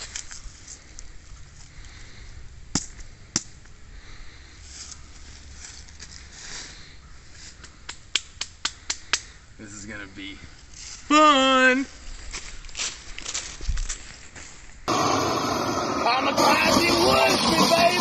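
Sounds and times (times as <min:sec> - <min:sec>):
rustling in dry leaves: 0:04.4 - 0:07.6, 0:10.5 - 0:11.1, 0:11.9 - 0:14.8
crunching footsteps: 0:11.9 - 0:14.9.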